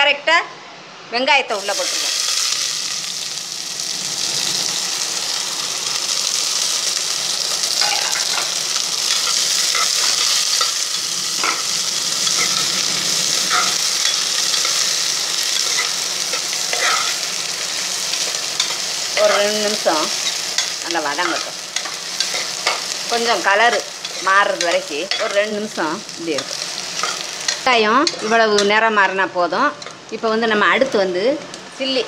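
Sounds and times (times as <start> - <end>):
onions sizzling in hot oil: 1.5 - 32.0
metal spoon scraping a pot: 15.6 - 17.2.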